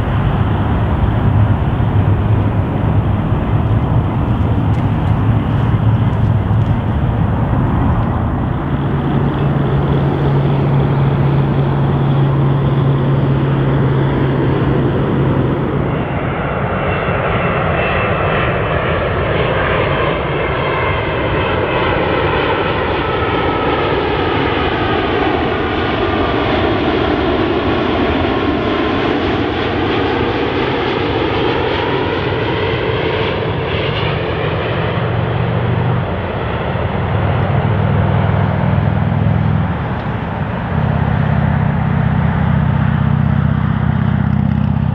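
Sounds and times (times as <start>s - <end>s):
low steady hum: 0.0s - 16.2s
jet engines flying past: 0.0s - 44.9s.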